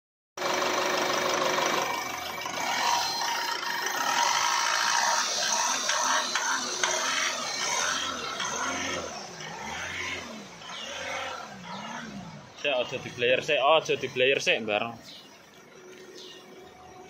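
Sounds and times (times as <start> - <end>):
car engine idling: 0.4 - 17.0.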